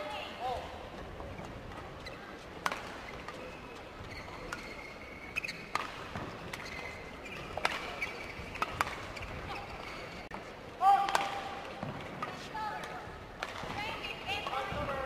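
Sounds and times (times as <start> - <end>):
shoes squeaking on court floor: 1.0 - 10.4
racket hitting shuttlecock: 2.6 - 3.4, 5.4 - 6.8, 7.4 - 9.1, 11.0 - 13.8.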